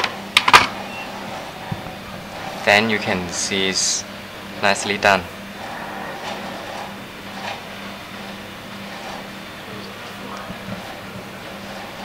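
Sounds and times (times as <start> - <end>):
room noise hum and hiss: 0.0 - 12.0.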